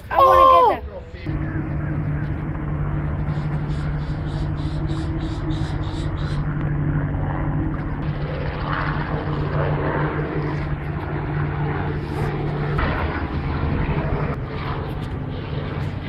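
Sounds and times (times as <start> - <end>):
boat engine idling: 1.3 - 9.9.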